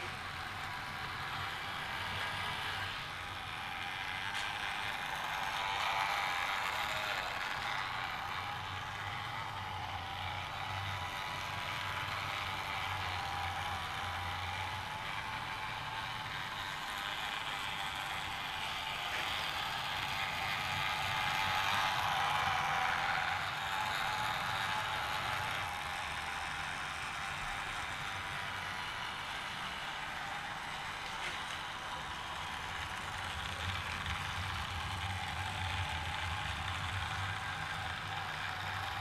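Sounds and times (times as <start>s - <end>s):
small electric motor whirring: 0.0s - 39.0s.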